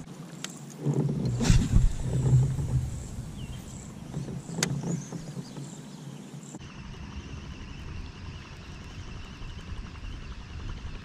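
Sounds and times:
handling noise and rumble: 0:00.8 - 0:08.0.

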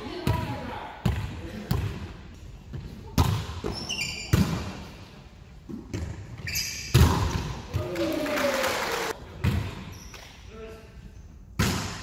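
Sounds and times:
sneakers squeaking on hardwood: 0:02.7 - 0:04.7, 0:05.7 - 0:07.5
volleyball smacks ringing in hall: 0:06.8 - 0:08.0, 0:11.6 - 0:12.0.

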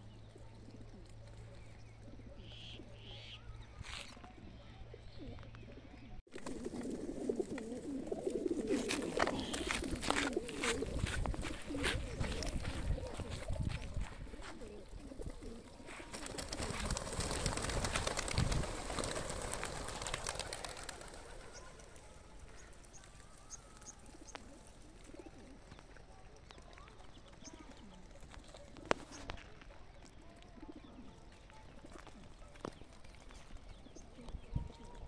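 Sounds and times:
pigeons flapping wings: 0:06.3 - 0:29.6.

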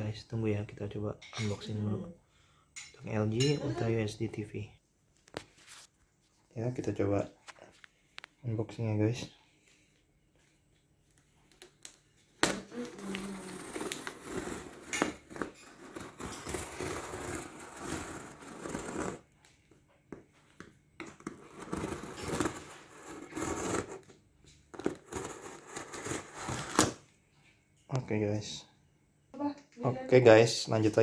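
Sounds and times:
plastic wrap crinkling and tearing: 0:11.5 - 0:19.2
box cutter slitting plastic: 0:21.3 - 0:24.0.

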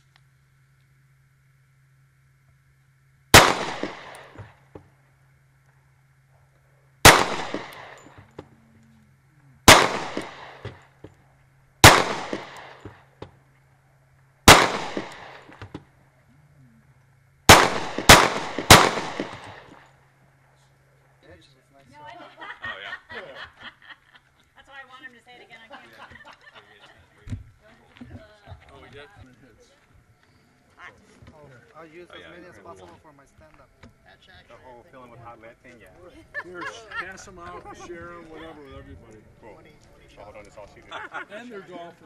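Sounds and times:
handgun shots echoing: 0:03.4 - 0:04.5, 0:07.1 - 0:08.2, 0:09.7 - 0:10.8, 0:11.8 - 0:13.0, 0:14.5 - 0:15.7, 0:17.5 - 0:19.8.

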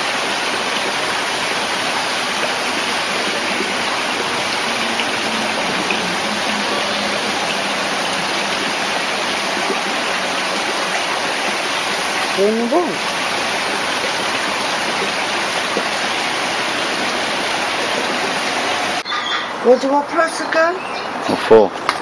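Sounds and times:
water pouring into pool: 0:00.0 - 0:19.0.

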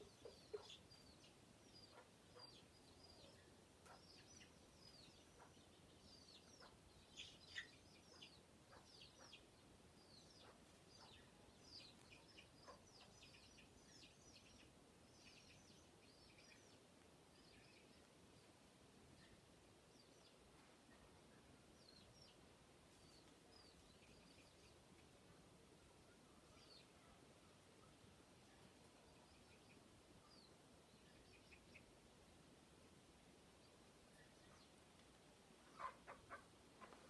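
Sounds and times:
hen clucking: 0:00.0 - 0:01.0, 0:35.7 - 0:37.0
chicks peeping: 0:00.0 - 0:16.8, 0:35.6 - 0:37.0.

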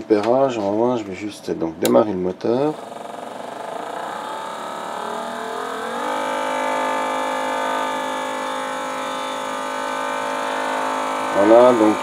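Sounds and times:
small electric motor whining: 0:02.7 - 0:12.0.

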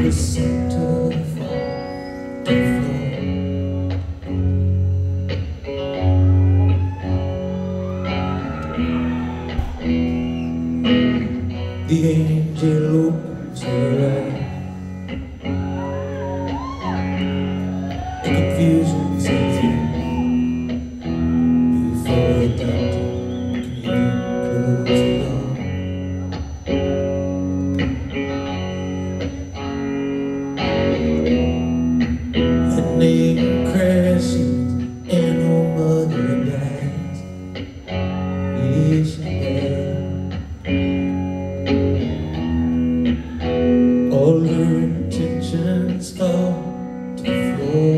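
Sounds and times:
male lead vocal: 0:00.0 - 0:03.6, 0:11.1 - 0:14.8, 0:17.9 - 0:20.6, 0:21.6 - 0:25.9, 0:32.6 - 0:37.4, 0:38.5 - 0:40.3, 0:43.2 - 0:47.9
live rock band playing: 0:00.0 - 0:47.9.

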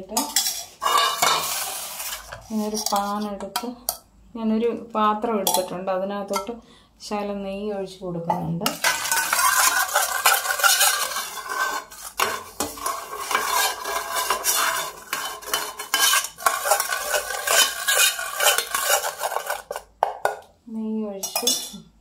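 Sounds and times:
steel spoon scraping tin pan: 0:00.0 - 0:03.4, 0:08.7 - 0:19.9, 0:21.2 - 0:21.8.

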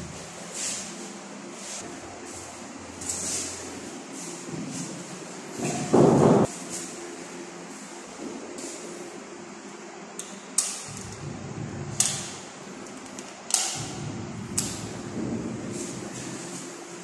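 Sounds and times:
sharp knocks: 0:05.6 - 0:06.5.

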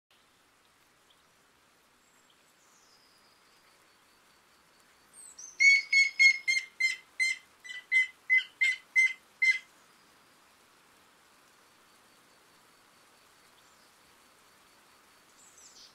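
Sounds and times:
woodpecker calling: 0:05.4 - 0:09.7.

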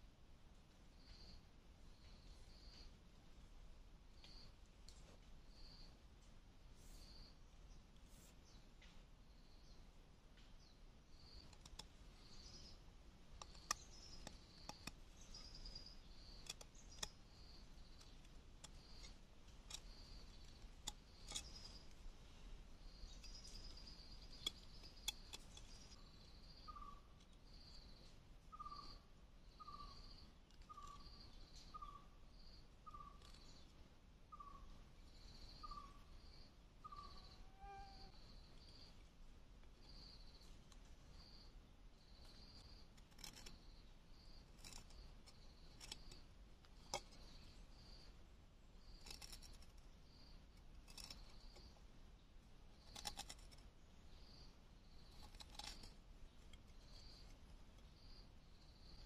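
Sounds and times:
knife cutting bamboo stick: 0:48.9 - 0:49.8, 0:52.8 - 0:53.6.

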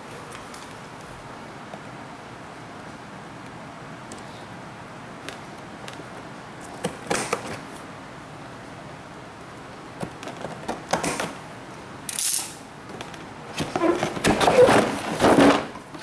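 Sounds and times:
cardboard lid scraping open: 0:13.6 - 0:15.8.

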